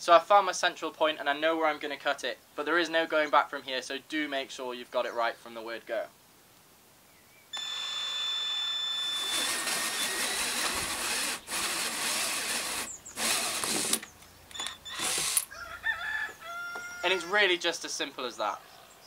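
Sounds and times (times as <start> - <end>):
drill motor whine: 7.6 - 15.5
hole saw grinding through plastic: 8.9 - 15.5.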